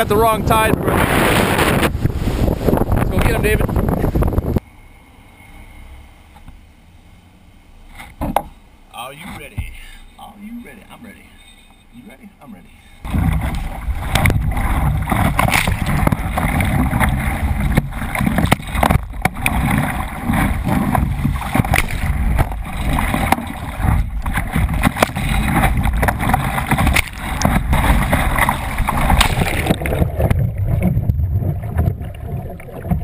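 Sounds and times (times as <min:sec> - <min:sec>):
wind on microphone: 0:00.0 - 0:04.6, 0:13.1 - 0:33.0
rushing water: 0:13.0 - 0:33.0.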